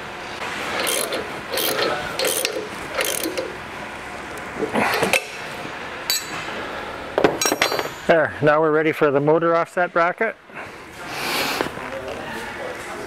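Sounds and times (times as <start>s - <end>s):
ratchet wrench clicking: 0.7s - 3.6s.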